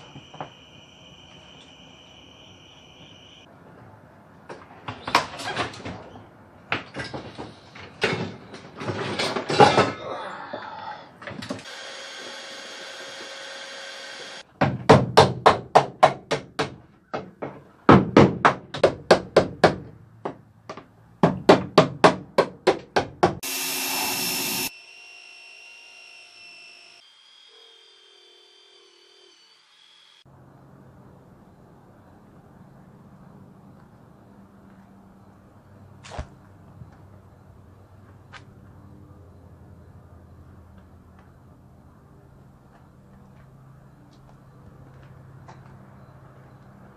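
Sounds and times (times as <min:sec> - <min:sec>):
faint whine: 0:00.0 - 0:03.5
power tool running: 0:11.6 - 0:14.4, 0:23.4 - 0:30.2
steady machine noise: 0:23.4 - 0:30.2.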